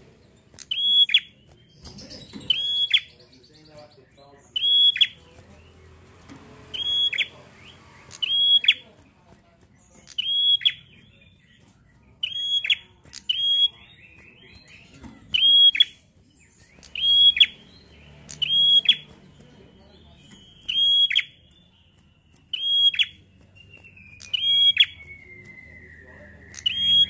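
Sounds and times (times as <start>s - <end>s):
bird chattering trill: 0.2s - 5.9s, 6.6s - 25.7s, 26.4s - 27.0s.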